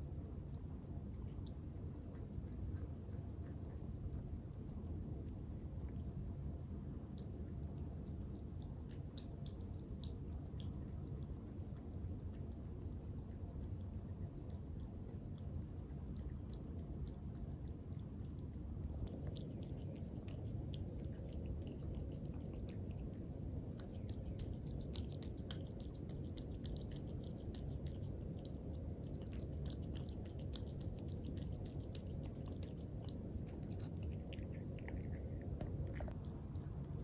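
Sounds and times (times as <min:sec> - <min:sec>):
cat crunching dry kibble: 0:07.8 - 0:37.0.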